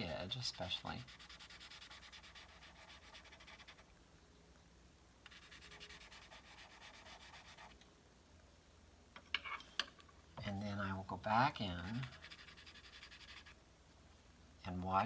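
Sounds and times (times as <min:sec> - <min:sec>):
pencil scratching on paper: 0:00.0 - 0:03.8, 0:05.3 - 0:07.7, 0:11.8 - 0:13.6.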